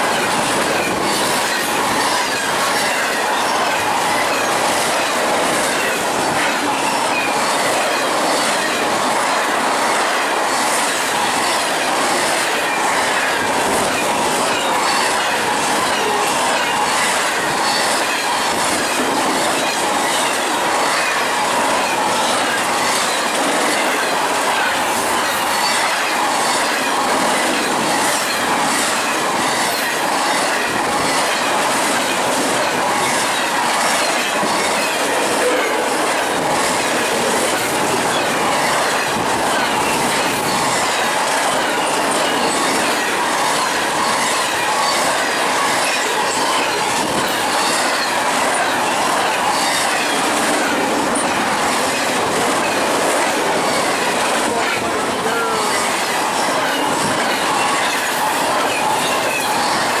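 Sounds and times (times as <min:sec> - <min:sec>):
fast clickety-clack: 0:00.0 - 1:00.0
train wheels rushing on rails: 0:00.0 - 1:00.0.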